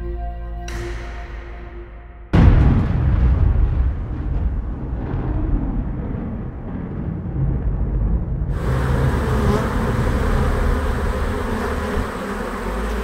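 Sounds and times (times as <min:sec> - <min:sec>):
low rumble: 0:00.8 - 0:12.0
honeybees buzzing: 0:08.5 - 0:13.0.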